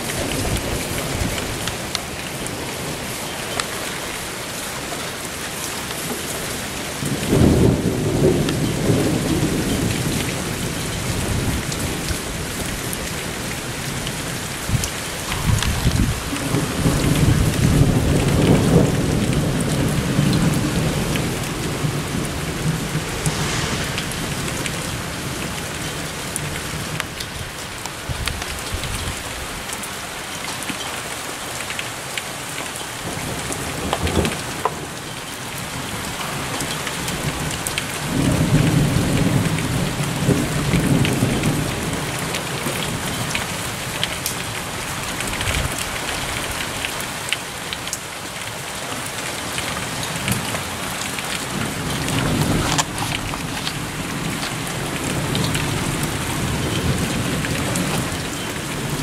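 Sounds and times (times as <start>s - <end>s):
steady rain: 0.0s - 59.0s
thunder rumbling: 14.6s - 27.0s.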